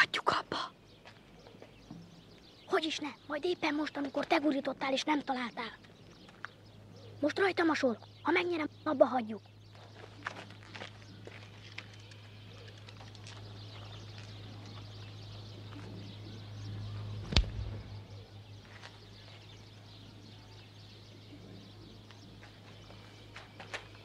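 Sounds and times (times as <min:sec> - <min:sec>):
birds chirping faintly: 0:00.0 - 0:24.0
steady low hum: 0:00.0 - 0:24.0
marble rolling over gritty ground: 0:09.7 - 0:15.0.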